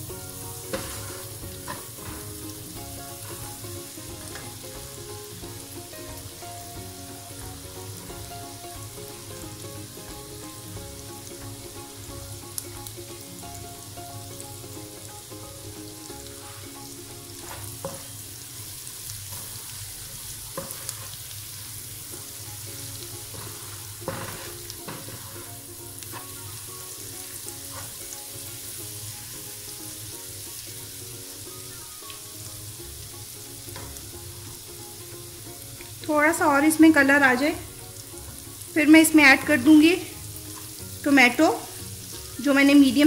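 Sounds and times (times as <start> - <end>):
onion and garlic sizzling: 0.0 - 43.0
spatula scraping and knocking pan: 0.5 - 11.6, 16.0 - 26.7, 27.3 - 28.8, 33.7 - 34.6.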